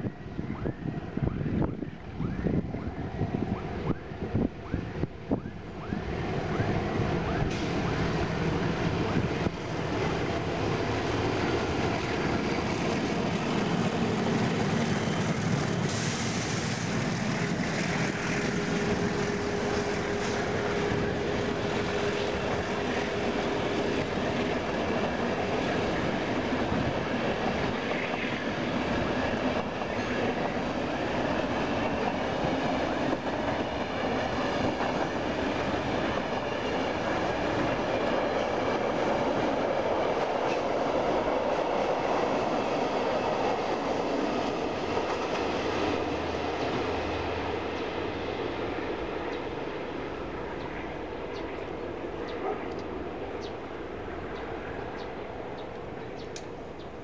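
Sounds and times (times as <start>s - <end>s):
diesel locomotives passing: 0.0s - 57.0s
train wheels clickety-clack: 7.3s - 7.9s, 11.1s - 48.5s.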